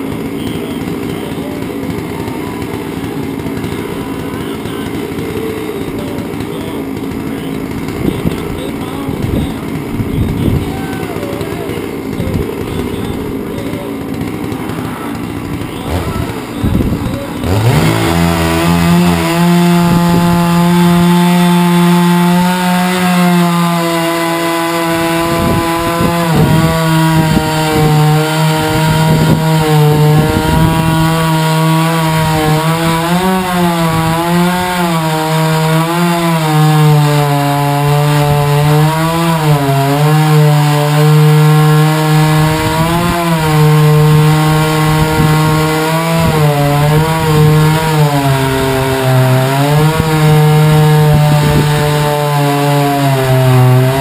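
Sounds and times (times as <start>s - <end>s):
chainsaw cutting log: 0.0s - 54.0s.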